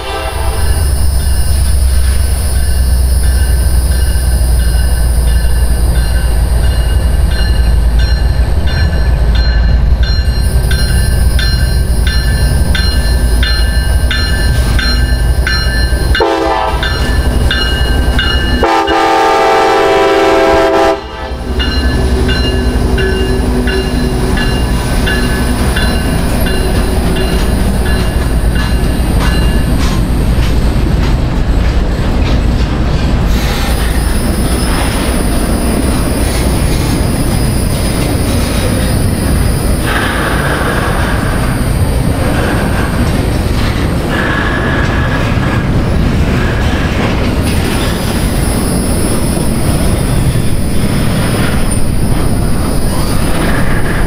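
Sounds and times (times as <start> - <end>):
train horn blasts: 0.0 - 0.9, 16.2 - 17.1, 18.5 - 21.6
train rumbling past: 0.0 - 54.0
wheels clicking over rail joints: 21.6 - 48.4.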